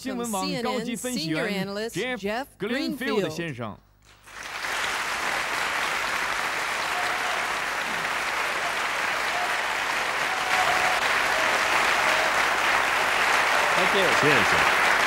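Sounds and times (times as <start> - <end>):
audience applauding: 4.1 - 15.0.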